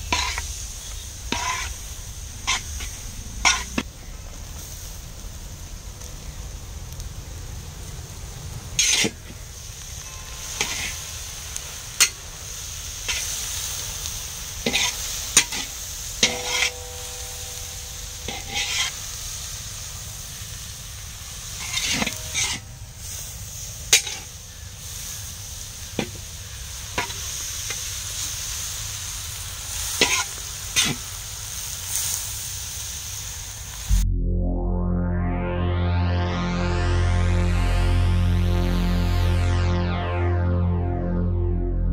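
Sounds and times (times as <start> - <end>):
metal spatula scraping and knocking pan: 0.0 - 1.8, 2.4 - 3.8, 10.1 - 12.2, 14.6 - 19.2, 21.6 - 22.7
vegetables sizzling in a pan: 0.0 - 33.9
music: 33.9 - 41.9.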